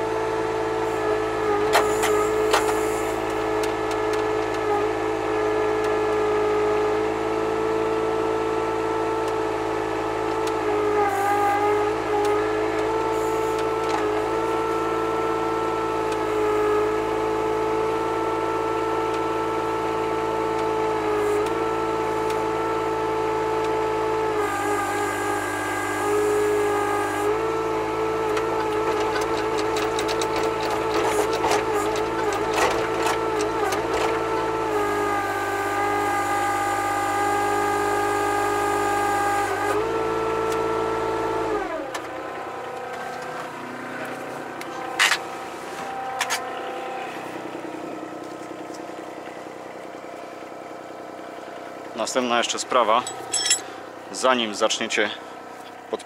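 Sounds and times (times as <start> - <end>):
hydraulic pump whining: 0.0 - 55.9
diesel engine running: 0.0 - 56.0.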